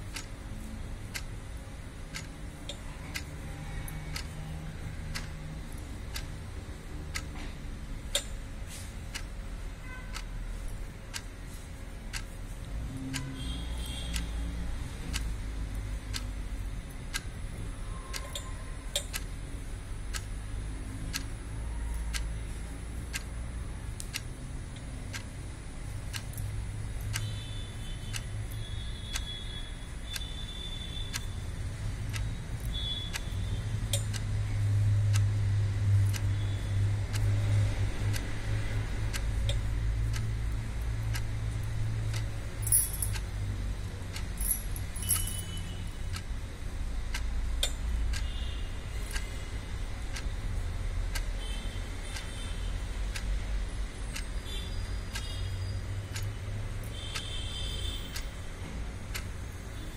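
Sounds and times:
steady regular ticking: 0.0 - 59.9
metallic jingle of bangles: 42.6 - 43.2, 44.4 - 45.8.

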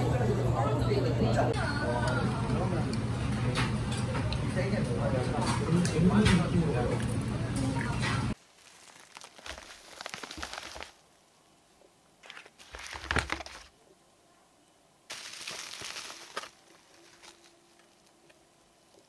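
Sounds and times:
plastic packaging crinkling: 8.4 - 11.0, 12.2 - 13.7, 15.1 - 19.0.

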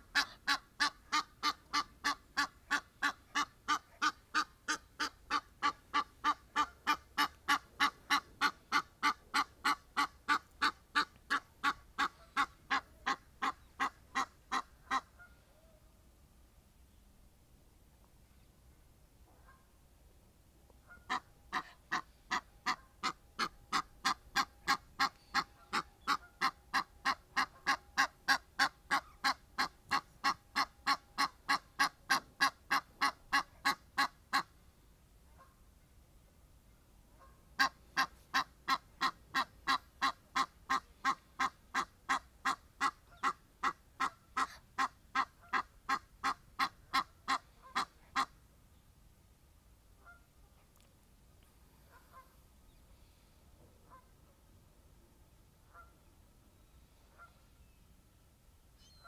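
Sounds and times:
goose honking: 0.1 - 15.4, 20.9 - 34.5, 37.2 - 48.3.

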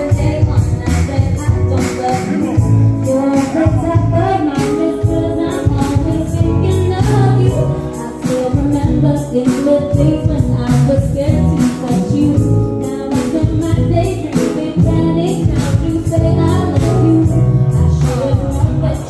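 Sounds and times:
bass guitar: 0.0 - 19.0
electric guitar: 0.0 - 19.0
keyboard: 0.0 - 19.0
woman singing: 0.0 - 19.0
drum beat: 0.2 - 12.6.

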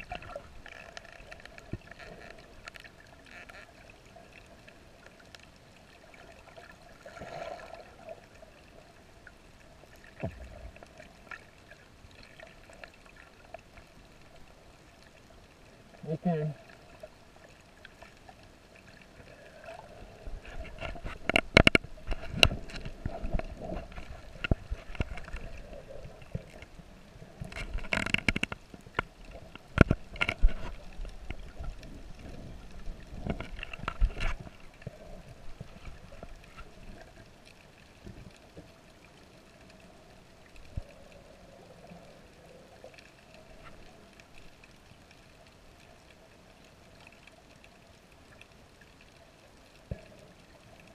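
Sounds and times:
faint underwater hum: 0.0 - 50.9
underwater sloshing and bubbling: 0.0 - 50.9
sharp underwater knocks: 20.8 - 25.3.

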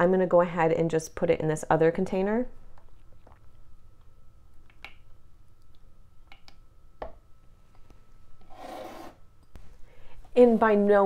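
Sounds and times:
container sliding on countertop: 8.5 - 9.2.

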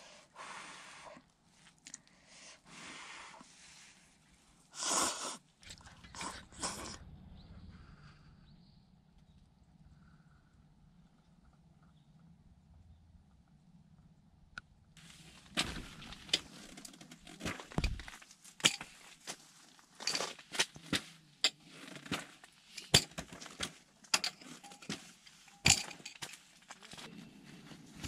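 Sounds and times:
cot parts clicking and knocking: 20.1 - 26.4.

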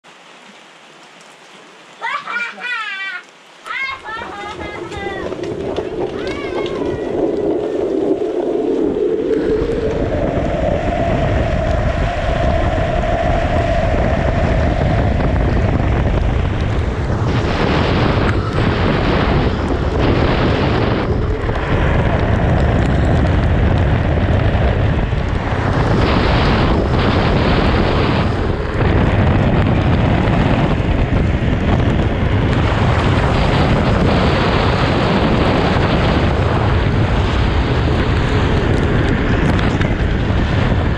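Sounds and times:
wheels hissing on wet asphalt: 3.7 - 40.9
wind buffeting microphone: 3.7 - 40.9.

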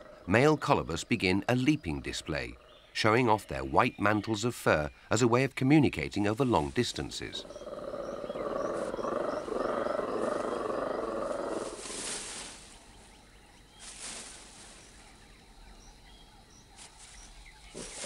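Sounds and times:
monkey deep pulsing roar: 7.4 - 12.0
branches and leaves shaking: 10.2 - 13.2, 13.8 - 15.1.

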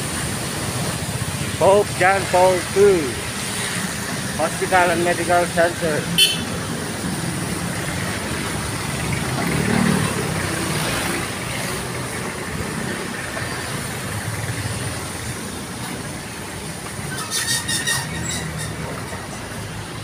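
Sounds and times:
traffic on a wet road: 0.0 - 20.0
vehicle passing close: 0.6 - 15.5.

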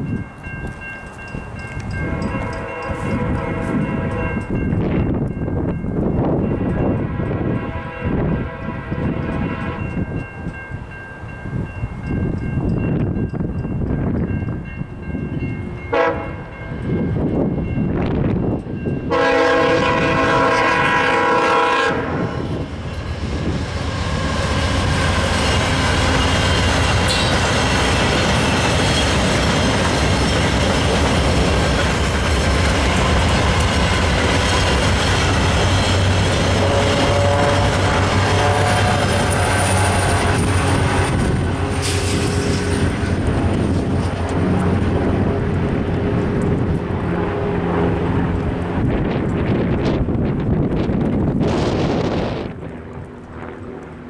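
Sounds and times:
train wheels rushing on rails: 0.0 - 54.0
train horn blasts: 1.9 - 4.6, 6.8 - 10.1, 15.8 - 17.0, 19.1 - 22.6, 24.9 - 27.5, 35.9 - 43.2.

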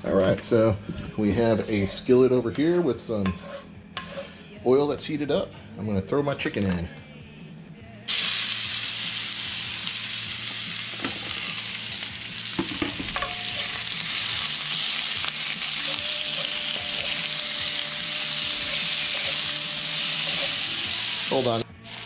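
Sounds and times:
chicken sizzling in hot oil: 8.1 - 22.0
wooden spatula knocking on pan: 12.6 - 13.4.

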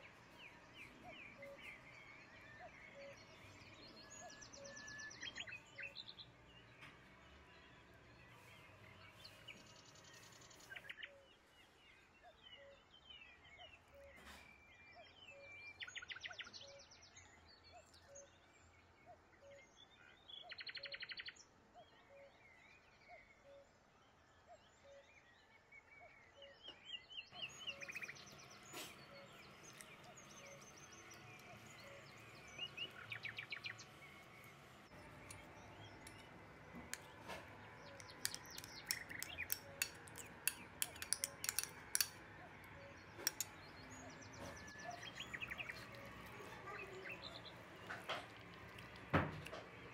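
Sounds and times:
bird trills and chirps: 0.0 - 6.8, 26.3 - 49.9.

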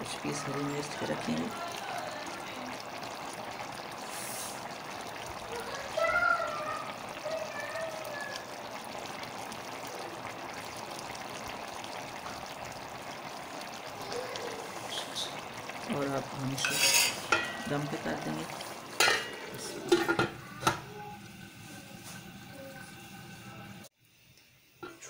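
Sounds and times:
water bubbling at a boil in a pot: 0.0 - 25.0.

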